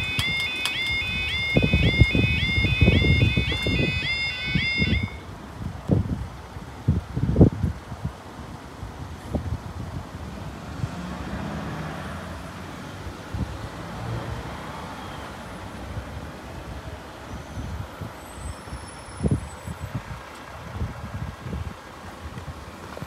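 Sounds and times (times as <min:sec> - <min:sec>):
wind buffeting microphone: 0:00.0 - 0:11.4, 0:19.1 - 0:23.0
murmur of road traffic: 0:00.0 - 0:23.0.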